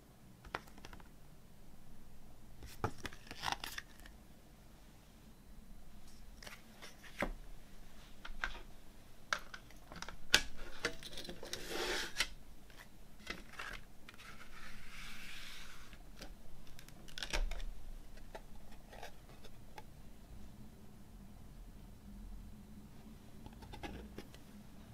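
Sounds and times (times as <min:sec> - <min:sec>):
disc sliding and rustling: 0:10.5 - 0:16.0.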